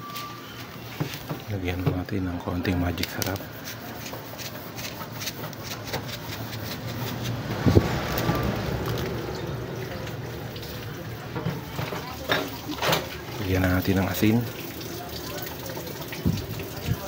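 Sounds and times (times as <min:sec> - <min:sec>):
coconut milk simmering: 0:00.0 - 0:17.0.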